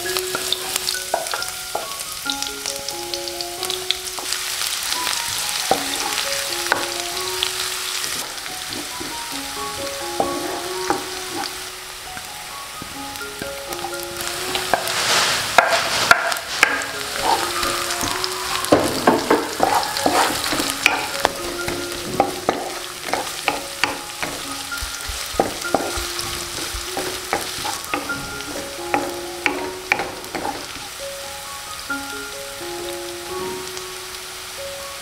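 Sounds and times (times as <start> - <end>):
onion sizzling in hot oil: 0.0 - 35.0
soft plucked background music: 0.0 - 35.0
wooden spatula scraping pan: 8.0 - 11.7, 13.8 - 30.9.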